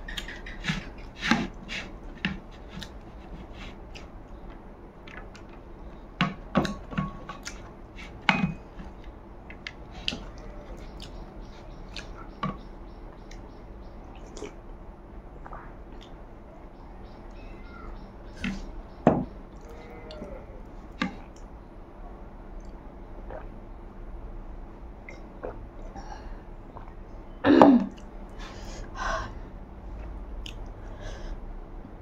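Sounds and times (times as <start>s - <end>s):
chewing and lip-smacking: 0.0s - 5.6s, 6.6s - 13.5s, 15.4s - 16.2s, 30.0s - 30.8s
fingers working food on plate: 0.1s - 4.1s, 6.2s - 9.1s.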